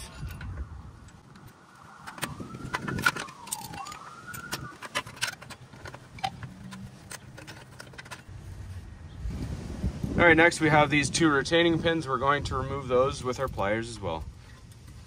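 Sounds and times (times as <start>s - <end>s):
pliers clicking and scraping metal: 1.4s - 8.3s.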